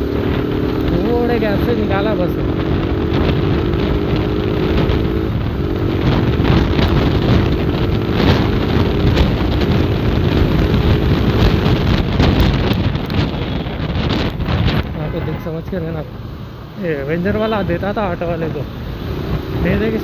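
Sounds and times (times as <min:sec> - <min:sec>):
motorcycle engine running: 0:00.0 - 0:15.0
wind on microphone: 0:00.0 - 0:15.3.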